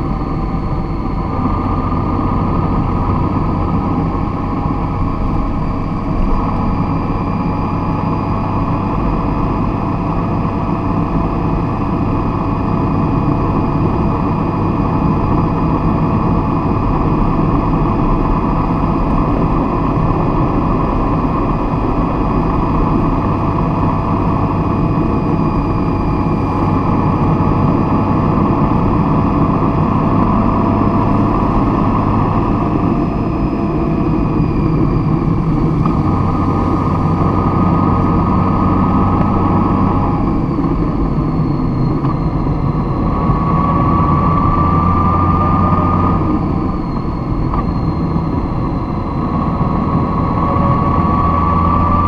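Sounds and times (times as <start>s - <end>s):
vehicle engine rumbling: 0.0s - 52.0s.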